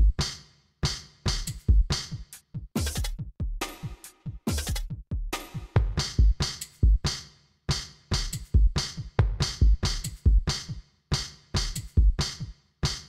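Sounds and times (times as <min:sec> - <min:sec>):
electronic music with drum machine: 0:02.8 - 0:07.0.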